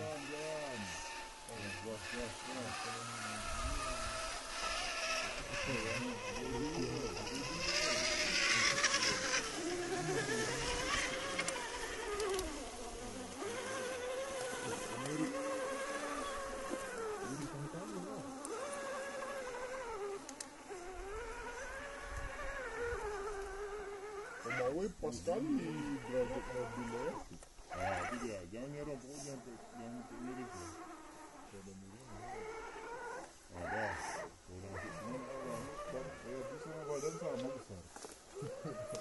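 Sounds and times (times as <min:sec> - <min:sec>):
electric motor whining: 0:00.0 - 0:39.0.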